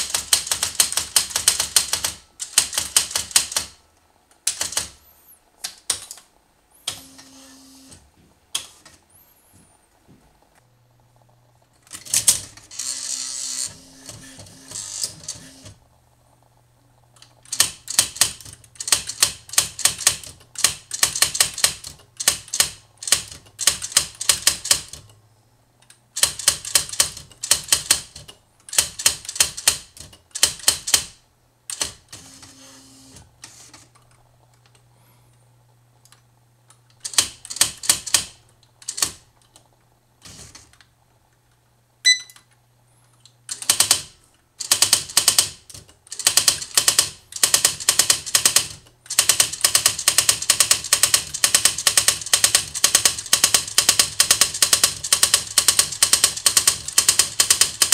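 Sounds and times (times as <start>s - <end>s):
typewriter carriage return whirr: 0.0s - 3.8s, 4.4s - 6.2s, 6.8s - 8.0s, 11.8s - 15.8s, 17.1s - 25.2s, 26.2s - 34.1s, 37.0s - 40.8s, 43.5s - 57.9s
typewriter print strikes: 0.0s - 3.8s, 11.9s - 15.8s, 17.4s - 25.1s, 26.2s - 33.8s, 43.5s - 57.9s
short electronic beep: 42.0s - 42.4s.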